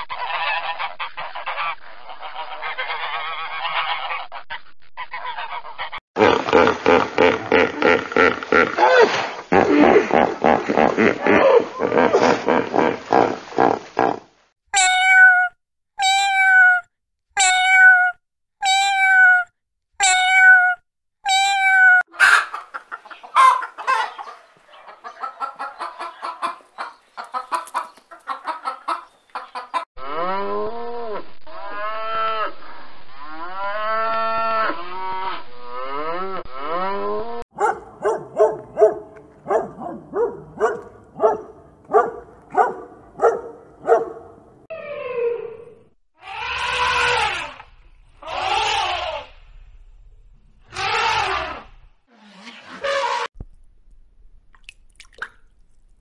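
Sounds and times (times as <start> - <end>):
pitched animal calls: 33.6 - 49.4, 50.7 - 53.3
chatter of short animal calls: 46.2 - 47.6, 48.2 - 49.4, 50.7 - 51.7.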